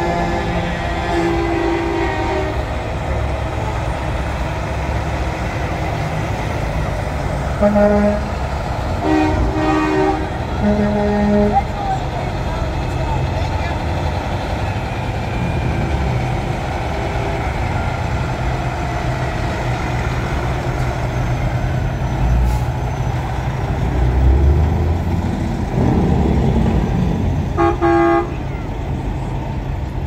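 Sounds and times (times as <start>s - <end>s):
truck horn blasts: 0.0s - 2.8s, 7.5s - 11.8s, 27.6s - 28.7s
diesel trucks rumbling past: 0.0s - 30.0s.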